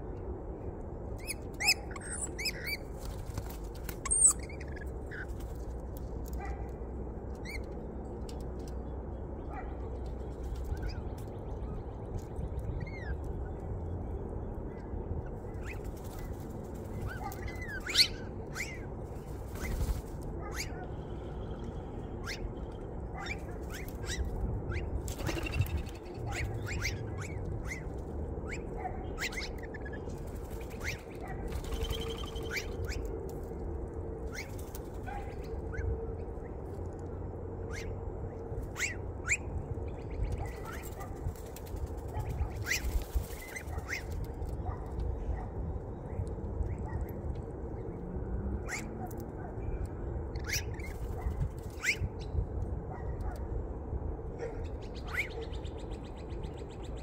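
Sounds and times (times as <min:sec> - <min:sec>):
low background rumble: 0:00.0 - 0:57.0
birds chirping: 0:20.4 - 0:33.1.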